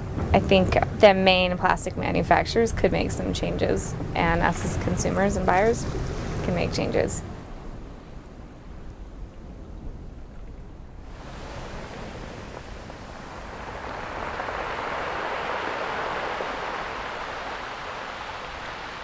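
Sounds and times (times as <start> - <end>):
sea wave rushing: 3.5 - 10.1, 11.0 - 19.0.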